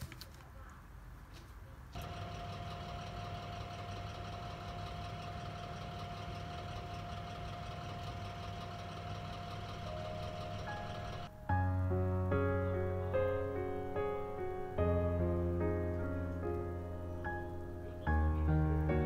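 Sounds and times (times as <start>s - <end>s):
oven motor hum: 2.0s - 11.3s
thin steady whine: 2.0s - 11.3s.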